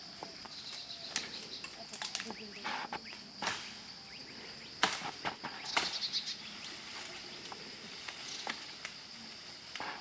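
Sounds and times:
high insect drone: 0.0 - 10.0
tree branches snapping: 0.7 - 2.4, 4.8 - 6.0.

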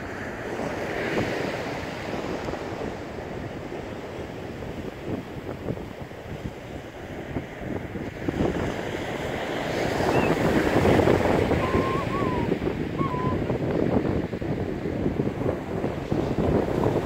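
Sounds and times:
surf washing on beach: 0.0 - 17.0
wind buffeting microphone: 0.0 - 17.0
faint thin whistle-like notes: 10.1 - 10.3, 11.6 - 13.4.

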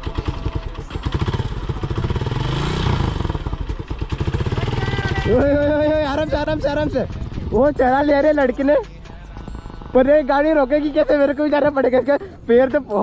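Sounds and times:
motorcycle engine idling: 0.0 - 12.8.

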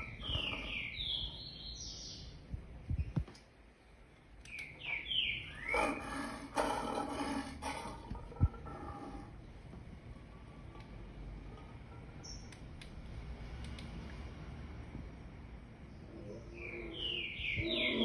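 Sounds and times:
low drawn-out bird call: 0.0 - 2.0, 16.0 - 18.0
birds chirping through speaker: 0.0 - 3.3, 4.3 - 8.9, 12.1 - 12.6, 15.8 - 18.0.

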